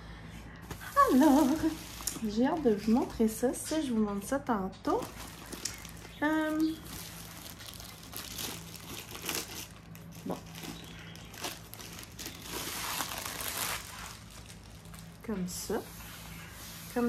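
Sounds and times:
plastic wrapping crinkling: 4.9 - 17.0.

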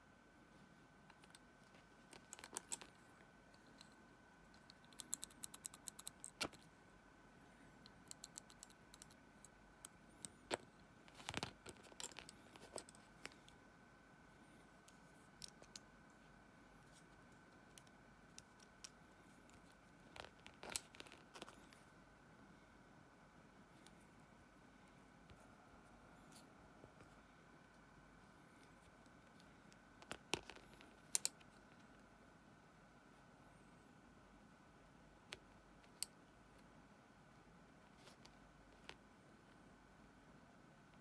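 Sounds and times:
metal pens clicking together: 2.1 - 3.0, 4.6 - 6.6, 7.8 - 10.6, 31.1 - 31.4.

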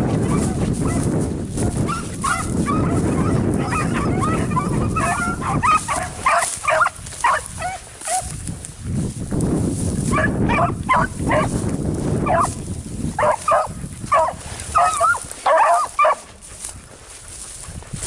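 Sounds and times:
dogs baying and yelping: 0.2 - 8.4, 10.1 - 11.6, 12.2 - 12.6, 13.2 - 16.5.

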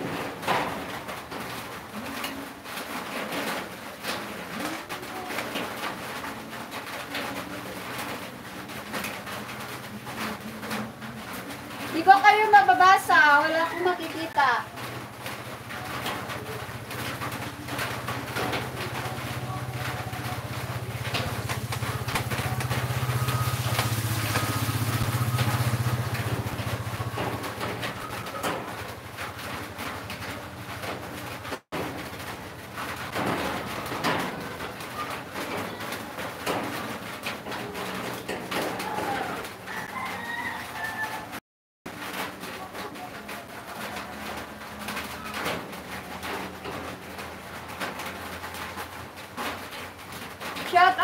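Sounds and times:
doves cooing: 4.1 - 31.0
small motorcycle engine passing: 17.4 - 28.8.

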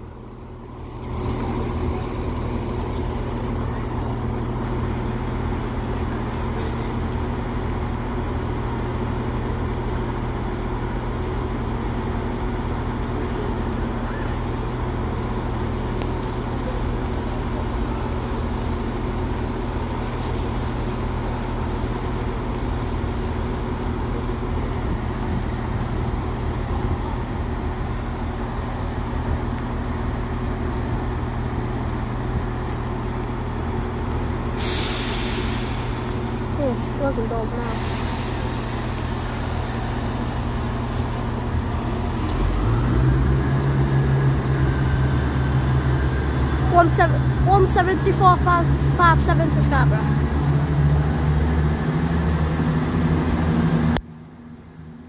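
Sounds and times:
diesel train engines idling: 0.0 - 55.0.

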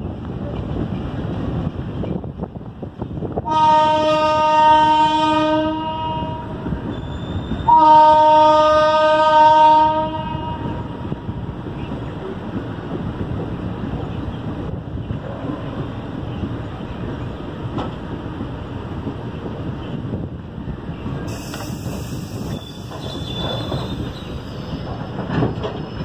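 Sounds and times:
moving train running noise and wind: 0.0 - 26.0
train horn blasts: 3.4 - 6.7, 7.6 - 11.0.

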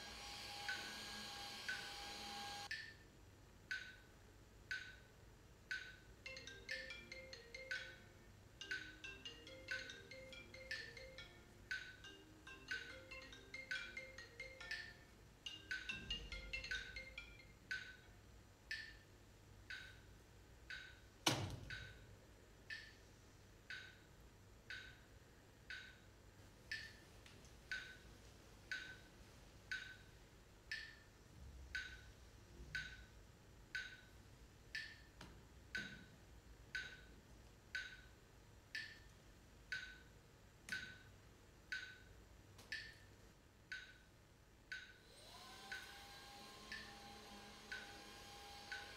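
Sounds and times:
wood block ticking: 2.6 - 3.0, 3.7 - 4.1, 4.7 - 22.0, 22.7 - 23.0, 23.7 - 25.0, 25.7 - 26.0, 26.7 - 27.0, 27.7 - 28.0, 28.7 - 29.1, 29.7 - 30.1, 30.7 - 31.1, 31.7 - 32.1, 32.7 - 33.1, 33.7 - 40.1, 40.7 - 43.0, 43.7 - 44.0, 44.7 - 45.0, 46.7 - 47.1, 47.7 - 48.9
mallet notes: 6.3 - 18.0.

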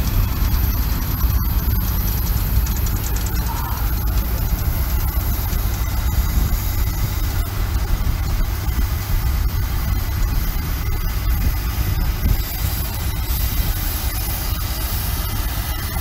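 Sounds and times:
steam traction engine rumbling: 0.0 - 16.0.

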